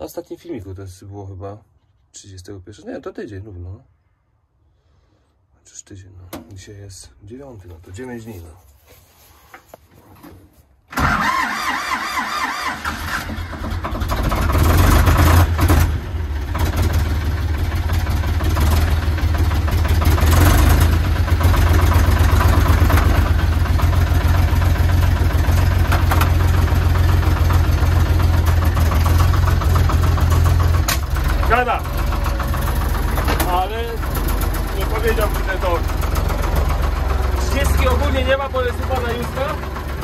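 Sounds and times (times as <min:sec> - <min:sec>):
starter motor cranking: 0:10.9 - 0:15.8
diesel engine idling: 0:11.0 - 0:40.0.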